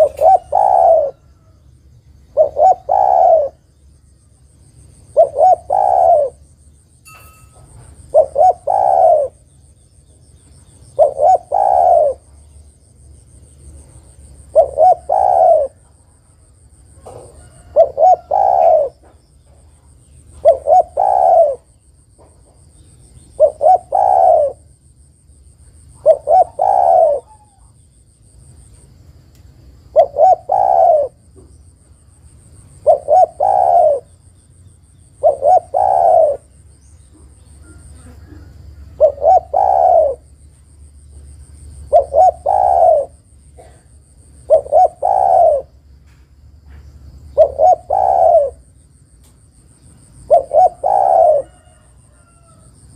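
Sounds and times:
dove cooing: 0:00.0 - 0:01.5, 0:02.3 - 0:03.7, 0:05.1 - 0:06.5, 0:08.0 - 0:09.5, 0:10.9 - 0:12.3, 0:14.3 - 0:15.9, 0:17.0 - 0:19.2, 0:20.3 - 0:21.8, 0:23.3 - 0:24.7, 0:26.0 - 0:27.8, 0:29.9 - 0:31.4, 0:32.8 - 0:34.2, 0:35.1 - 0:40.4, 0:41.7 - 0:45.9, 0:47.2 - 0:48.7, 0:50.2 - 0:52.6.

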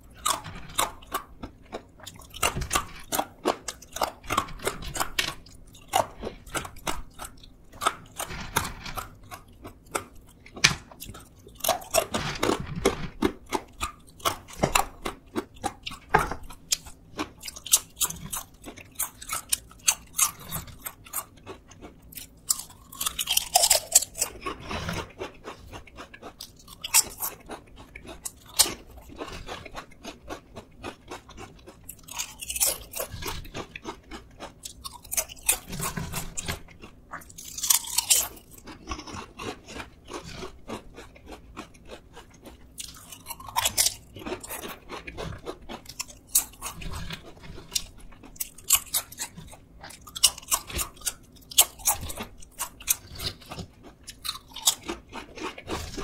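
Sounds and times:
potato chips crunching: 0:00.0 - 0:56.0.

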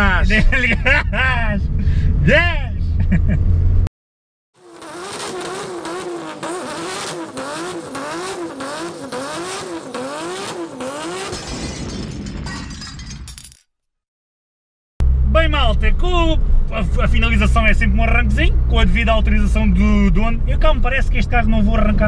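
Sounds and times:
car engine revving with crackling: 0:04.6 - 0:11.4.

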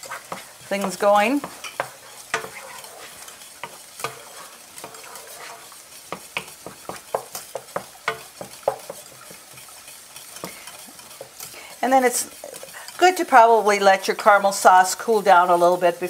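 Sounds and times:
onions sizzling in oil: 0:00.0 - 0:16.0
wooden spatula scraping a pan: 0:00.0 - 0:16.0
spatula tapping against pan: 0:00.2 - 0:05.1, 0:06.0 - 0:11.5.

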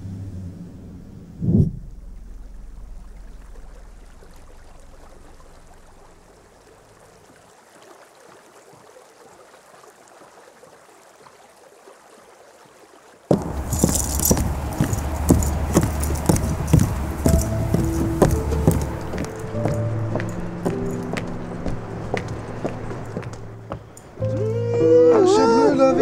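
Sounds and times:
low hum: 0:00.0 - 0:07.0, 0:13.3 - 0:24.4
flowing river water lapping: 0:00.0 - 0:26.0
sharp knocks: 0:13.3 - 0:21.3
music: 0:13.7 - 0:26.0.

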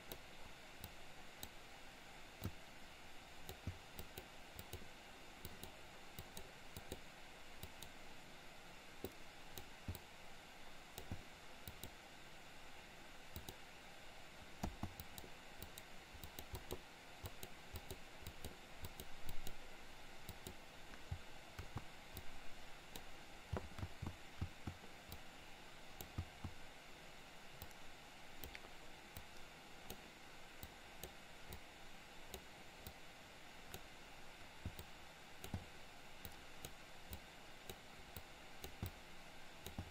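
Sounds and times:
faint background hiss: 0:00.0 - 0:39.9
mouse and keyboard clicks: 0:02.4 - 0:02.6, 0:03.4 - 0:08.0, 0:10.9 - 0:12.0, 0:13.4 - 0:13.6, 0:14.5 - 0:19.6, 0:20.2 - 0:25.3, 0:26.0 - 0:26.6, 0:28.4 - 0:31.7, 0:34.6 - 0:39.0, 0:39.6 - 0:39.9.

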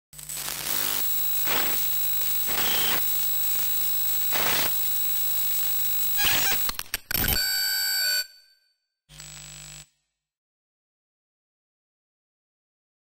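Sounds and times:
static hiss: 0:00.2 - 0:06.7
electronic buzz with whining tones: 0:00.2 - 0:10.0
glitch clicks stutter: 0:06.2 - 0:07.4.

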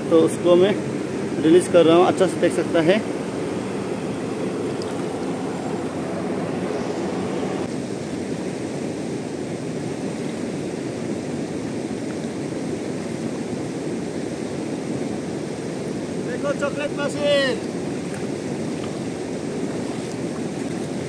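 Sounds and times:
river rushing over rocks: 0:15.2 - 0:21.0.

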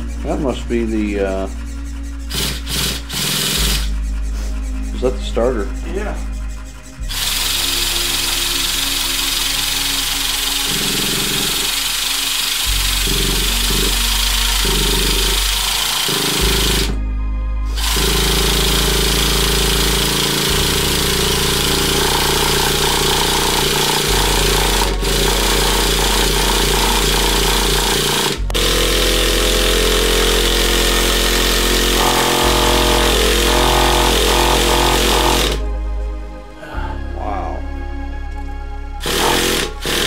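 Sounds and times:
bass line: 0:00.0 - 0:40.0
heavy distorted guitar: 0:17.7 - 0:36.0.

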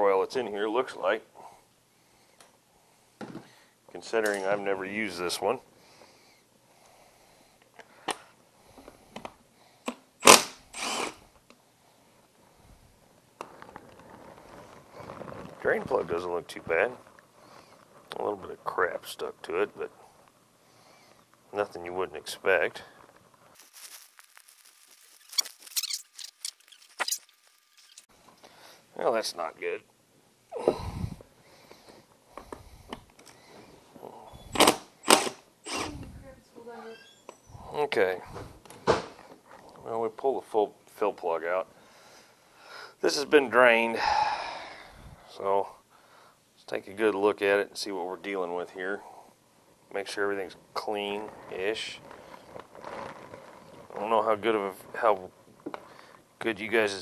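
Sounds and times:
cordless tool spinning socket: 0:09.8 - 0:11.2, 0:34.5 - 0:36.0.

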